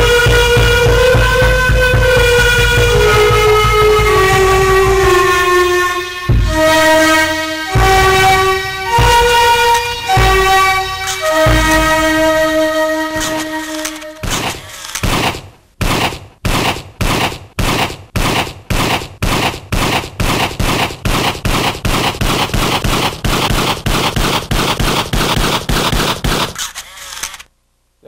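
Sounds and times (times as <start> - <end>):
sharp ringing bangs: 0.0 - 26.6.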